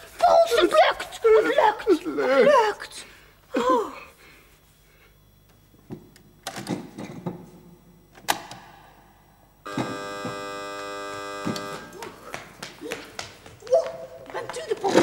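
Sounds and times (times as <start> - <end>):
steady buzzing tone: 4.1 - 12.2.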